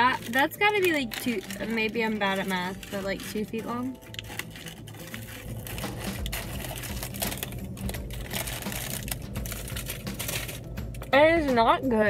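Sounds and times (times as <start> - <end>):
chewing crunches: 3.9 - 11.0.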